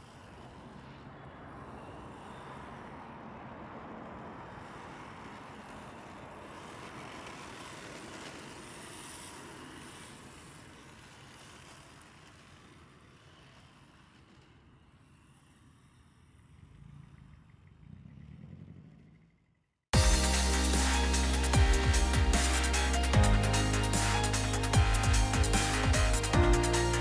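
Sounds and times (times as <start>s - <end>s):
tyres sliding on asphalt: 0.0s - 19.4s
electric motor thin whine: 4.2s - 16.8s, 20.0s - 27.0s.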